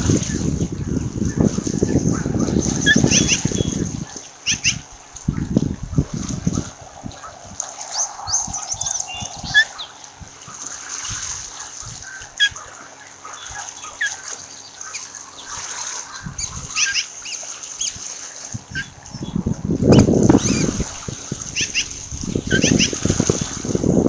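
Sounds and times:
ospreys chirping and whistling: 0:02.5 - 0:04.9, 0:07.9 - 0:10.1, 0:12.0 - 0:20.8, 0:21.5 - 0:23.0.

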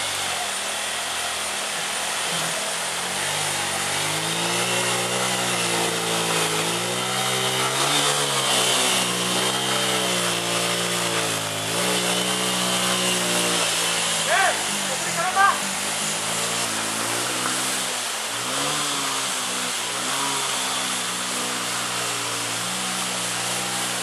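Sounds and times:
motorcycle engine revving: 0:00.0 - 0:24.0
flowing water rushing: 0:13.6 - 0:20.7.

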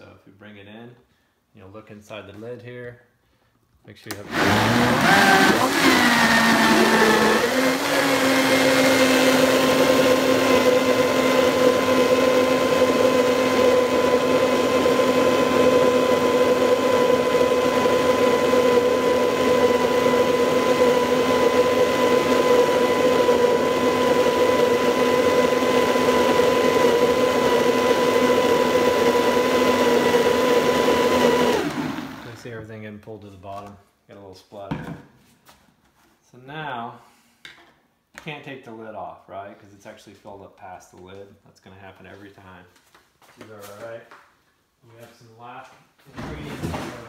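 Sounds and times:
blender motor whining: 0:04.1 - 0:32.4.

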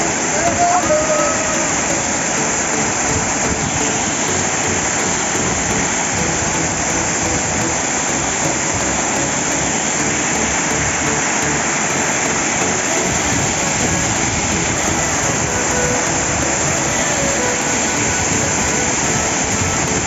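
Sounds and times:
waterfall: 0:00.0 - 0:20.0.

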